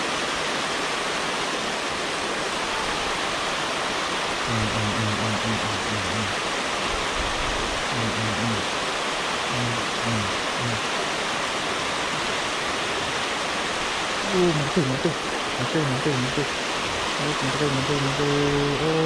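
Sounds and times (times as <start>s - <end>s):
water rushing over a weir: 0.0s - 19.0s
low repeated note: 4.5s - 6.3s.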